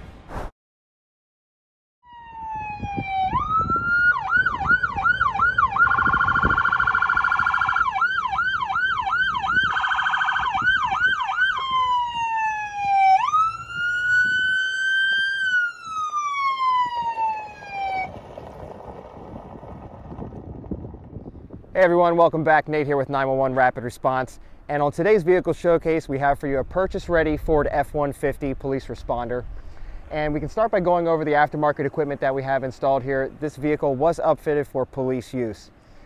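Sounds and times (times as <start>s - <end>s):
electronic police siren: 2.0s - 18.2s.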